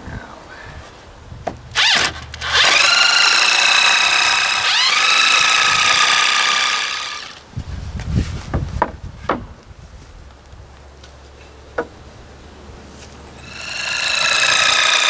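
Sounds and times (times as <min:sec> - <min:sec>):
electric drill whining: 0:01.7 - 0:07.4, 0:13.4 - 0:15.0.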